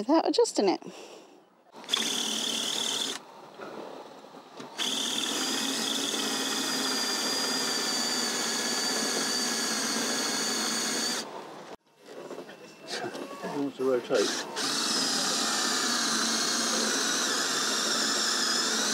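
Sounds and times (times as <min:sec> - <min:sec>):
cordless drill drilling into metal: 0:01.8 - 0:03.2, 0:04.8 - 0:11.3, 0:14.1 - 0:18.9.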